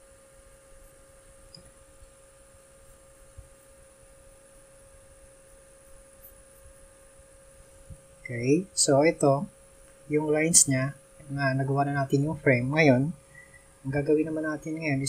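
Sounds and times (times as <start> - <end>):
steady electrical hum: 0.0 - 15.0.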